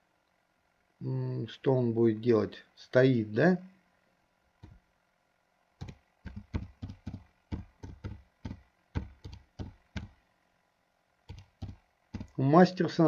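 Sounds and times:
computer keyboard typing: 5.8s - 10.2s, 11.3s - 12.4s.

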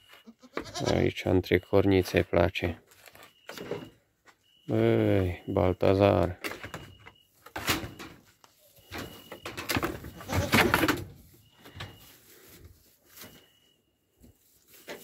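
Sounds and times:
faint high chirp: 1.2s - 10.5s, 11.3s - 15.0s
goat moving on straw: 10.0s - 15.0s.

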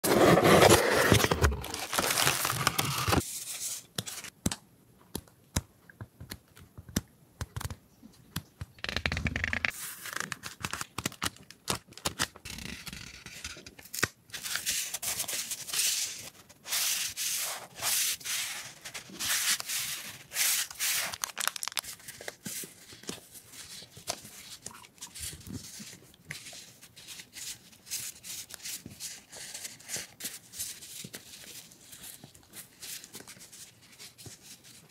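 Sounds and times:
stickers rustling and scraping: 16.8s - 23.2s.

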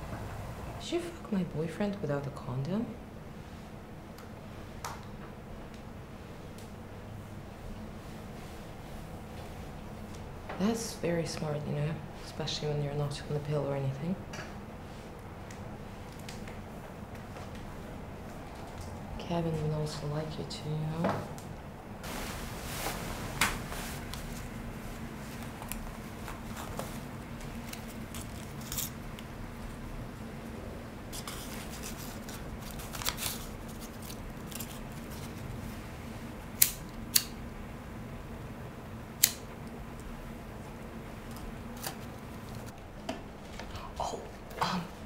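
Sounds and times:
steady low hum: 0.0s - 45.0s
sharp clicks and snips: 36.6s - 37.4s, 39.2s - 39.4s.

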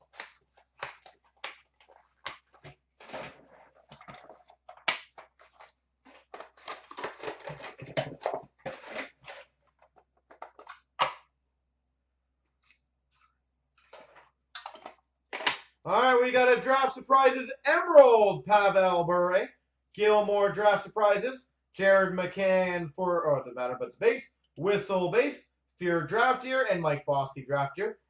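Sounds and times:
plastic wrap and cardboard crinkling: 0.0s - 10.7s
plastic card cases clicking: 3.9s - 11.2s.

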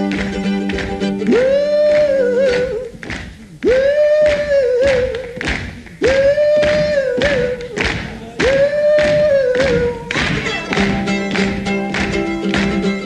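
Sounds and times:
strummed mandolin chords: 0.0s - 2.8s, 9.7s - 13.0s
percussive thumps: 0.0s - 13.0s.

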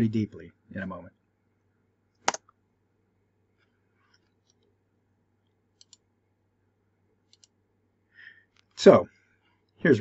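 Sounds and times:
low room hum: 0.0s - 10.0s
sharp click: 2.2s - 2.5s.

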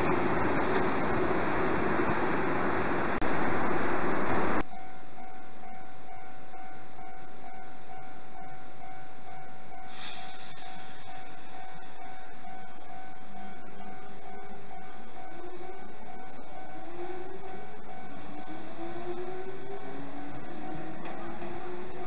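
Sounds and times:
level-crossing warning bell: 0.0s - 1.8s, 4.6s - 22.0s
electric train running: 0.0s - 4.6s, 10.4s - 22.0s
brief hiss: 9.9s - 11.2s.

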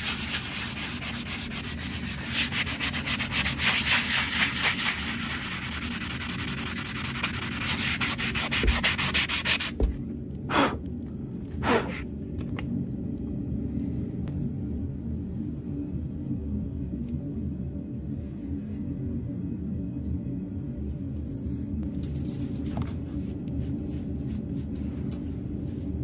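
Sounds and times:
sanding pad on hoof: 0.0s - 10.0s, 23.2s - 26.0s.

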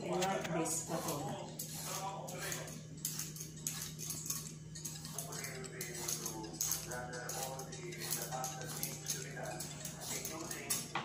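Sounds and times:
peeler scraping vegetable skin: 0.1s - 10.9s.

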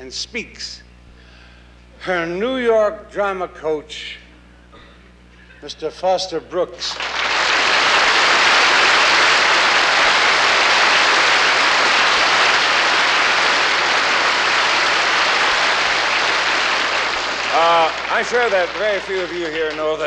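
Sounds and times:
audience applauding: 6.9s - 20.0s.

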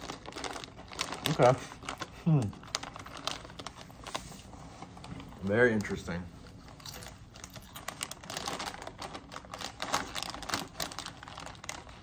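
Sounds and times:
foil snack bag crinkling: 0.0s - 4.2s, 4.9s - 12.0s
potato chips crunching: 6.8s - 12.0s.

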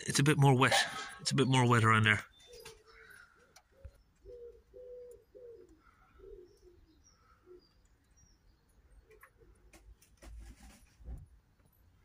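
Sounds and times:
pigeon cooing: 2.4s - 7.7s.

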